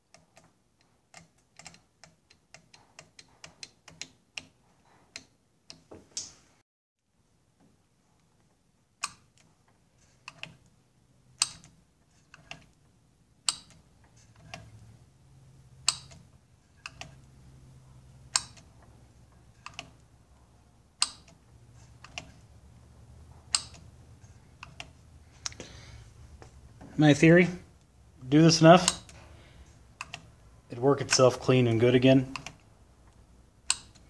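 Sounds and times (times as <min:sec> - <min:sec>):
solenoid clacking: 0:11.4 - 0:12.8, 0:13.4 - 0:14.9, 0:15.7 - 0:20.1, 0:20.9 - 0:22.5, 0:23.3 - 0:25.6, 0:28.6 - 0:29.3, 0:32.2 - 0:34.0.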